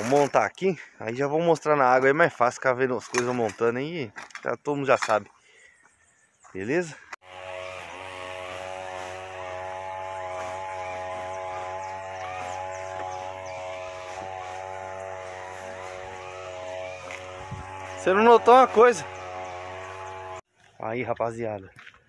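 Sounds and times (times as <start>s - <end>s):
small motor humming: 7.2s - 20.4s.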